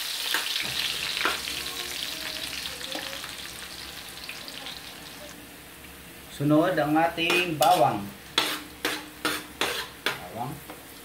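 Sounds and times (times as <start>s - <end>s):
onions sizzling in hot oil: 0.0s - 11.0s
metal spoon scraping a pan: 7.3s - 10.3s.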